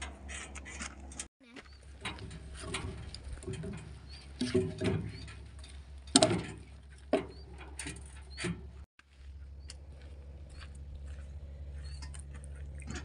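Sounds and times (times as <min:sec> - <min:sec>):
logs knocking and scraping: 0:00.0 - 0:08.9
bird chirps: 0:11.7 - 0:12.2.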